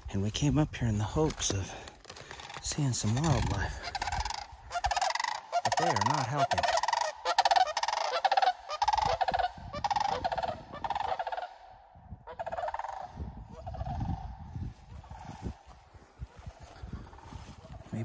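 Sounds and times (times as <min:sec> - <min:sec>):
cranes rattling calls: 0:02.0 - 0:17.8
wind rumble on microphone: 0:08.8 - 0:18.0.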